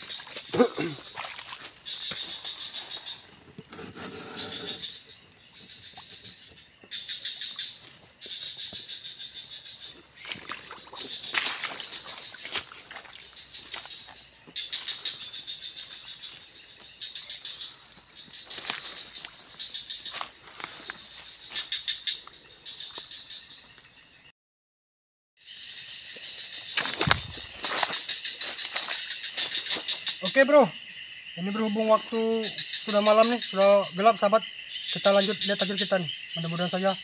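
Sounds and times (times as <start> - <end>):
pulsing insect chorus: 0.0 - 24.3, 25.4 - 37.0
footsteps through leaf litter: 11.3 - 14.0, 18.4 - 19.4, 26.8 - 30.0.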